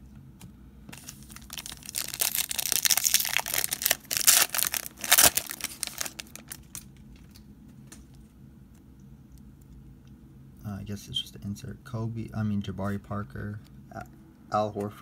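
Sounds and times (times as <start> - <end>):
foil wrapper crinkling and tearing: 1.0 - 7.4.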